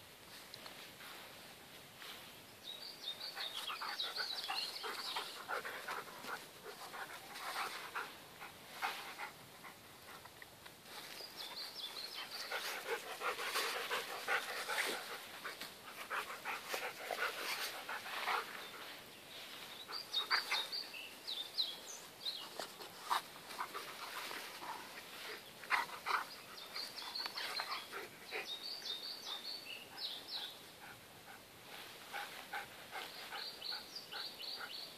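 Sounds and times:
scuffling and rustling in grass: 0.1s - 28.1s
dog panting: 3.4s - 10.2s, 12.1s - 18.8s.

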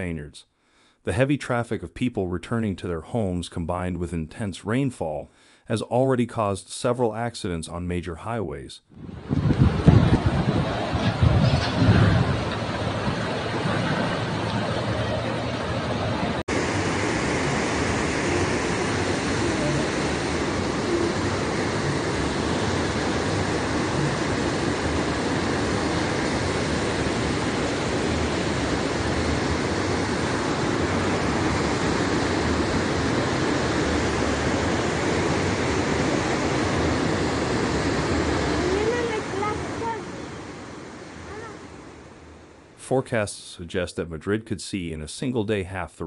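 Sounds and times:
floodwater rushing: 9.0s - 43.0s.

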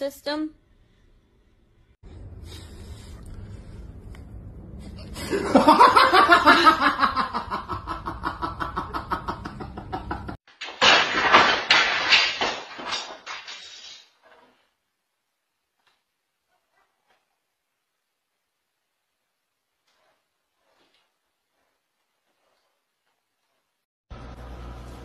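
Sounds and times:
person laughing hard: 5.2s - 10.4s.

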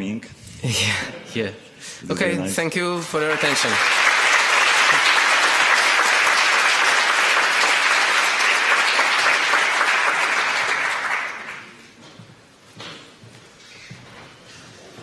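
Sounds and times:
audience applauding: 3.0s - 12.0s.

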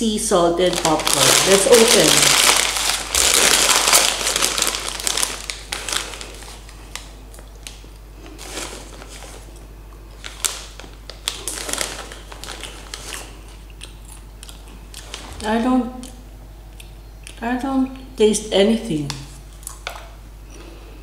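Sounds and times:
plastic bag crinkling: 0.5s - 15.6s.

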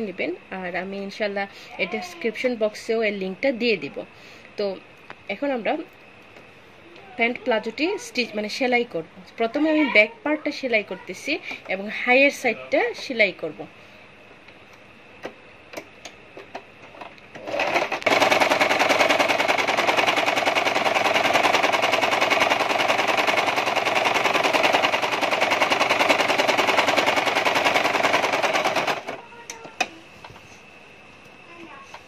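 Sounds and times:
sewing machine stitching: 17.4s - 29.2s.

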